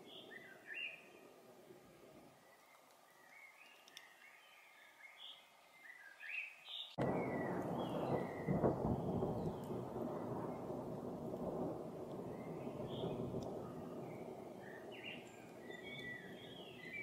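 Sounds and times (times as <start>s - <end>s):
songbirds chirping: 0.0s - 17.0s
thunder rumbling: 7.0s - 17.0s.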